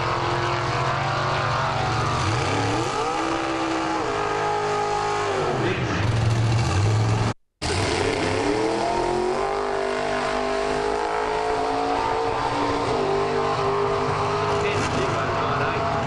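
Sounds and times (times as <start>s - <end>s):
car engine at full throttle: 0.0s - 16.0s.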